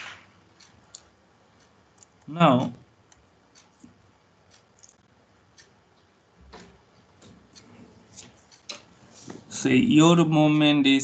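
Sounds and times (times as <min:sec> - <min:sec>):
computer mouse clicks: 0:00.0 - 0:02.3, 0:03.1 - 0:08.9.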